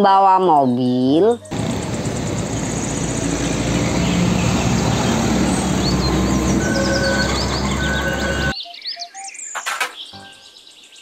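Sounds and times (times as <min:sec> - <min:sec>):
birds chirping: 0:00.6 - 0:11.0
truck driving past: 0:01.5 - 0:08.5.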